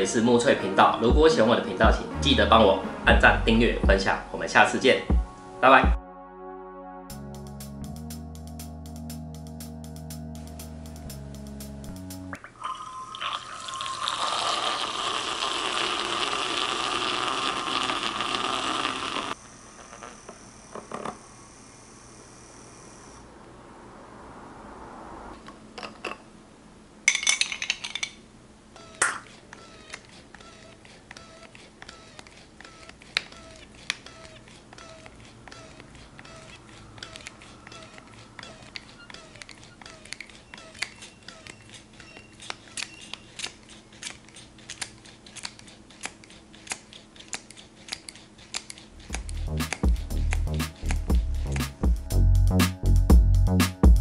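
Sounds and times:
hand pump strokes clicking: 0:28.8 - 0:51.1.

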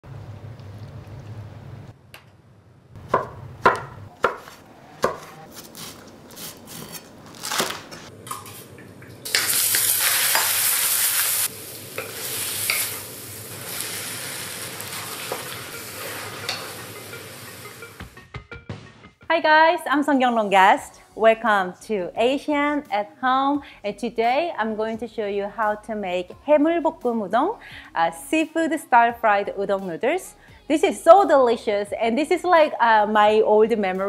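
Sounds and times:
garlic sizzling in hot oil: 0:09.2 - 0:18.1
wooden spatula scraping wok: 0:09.4 - 0:18.0
utensils clacking: 0:14.6 - 0:19.3.

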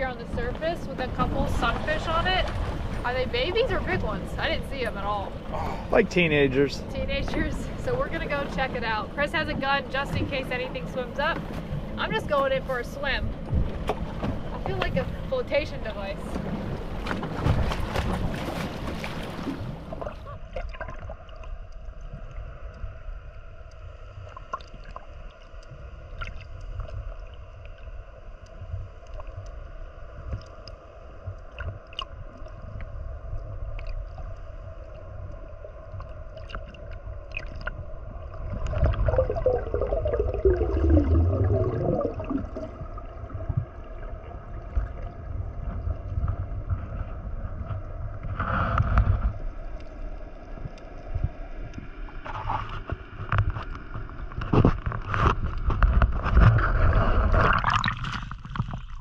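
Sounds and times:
muffled underwater water rumble: 0:00.0 - 0:59.0
faint hum: 0:18.2 - 0:58.2.

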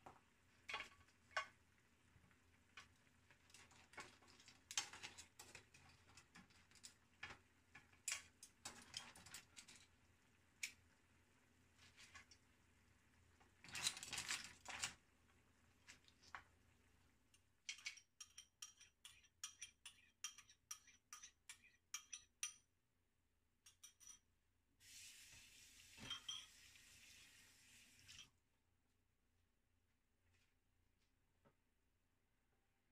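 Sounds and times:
soft steady hiss: 0:00.0 - 0:18.1, 0:24.8 - 0:31.6
metal utensils clinking on pan: 0:03.6 - 0:09.8, 0:17.7 - 0:22.7, 0:23.7 - 0:24.2, 0:26.0 - 0:26.6.

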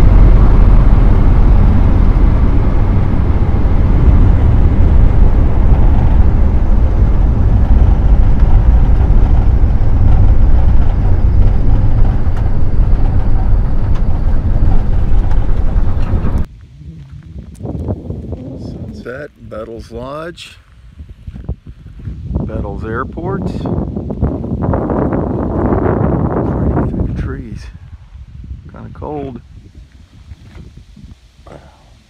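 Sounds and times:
plane engine and propeller drone: 0:00.0 - 0:19.0.

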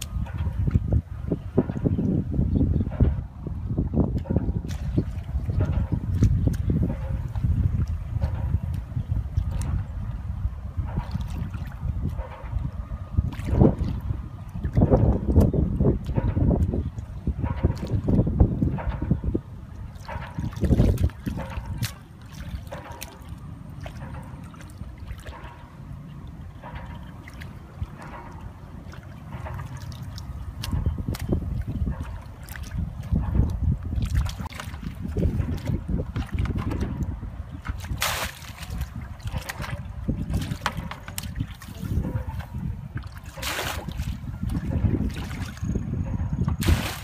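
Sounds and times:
muddy water splashing and gushing: 0:00.0 - 0:47.0
steady low rumble: 0:00.0 - 0:47.0
hands splashing in water: 0:37.6 - 0:42.4, 0:43.0 - 0:45.6, 0:46.6 - 0:47.0.

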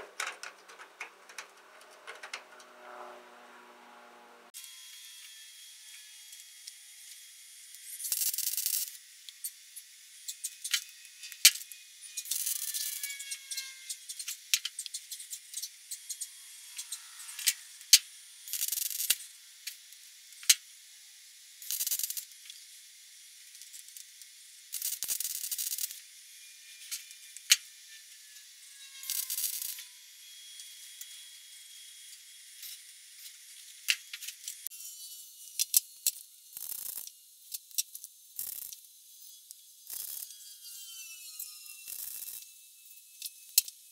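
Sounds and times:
welder crackling hiss: 0:21.4 - 0:26.2.

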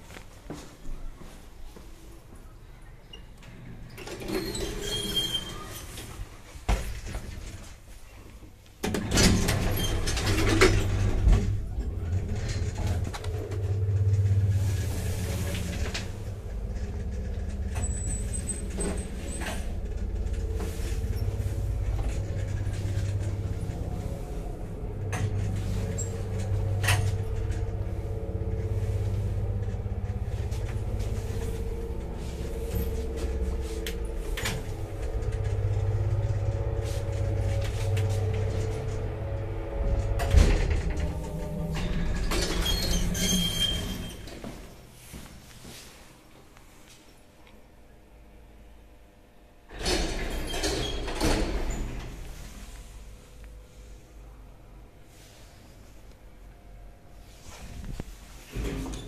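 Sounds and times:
lift motor humming: 0:09.0 - 0:44.7.

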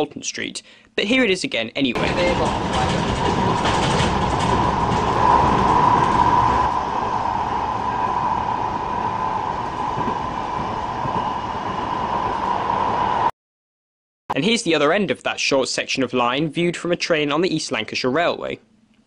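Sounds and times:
tram wheels running on rails: 0:02.0 - 0:13.3.

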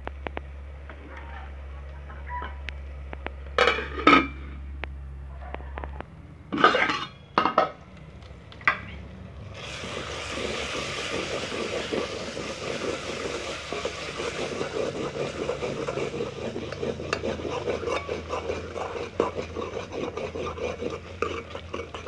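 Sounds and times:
metal spoon scraping a pot: 0:03.6 - 0:04.6, 0:06.5 - 0:07.8, 0:10.2 - 0:22.0.

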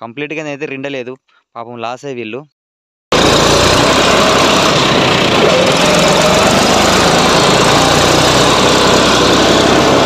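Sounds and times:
diesel engine running: 0:03.1 - 0:10.0.

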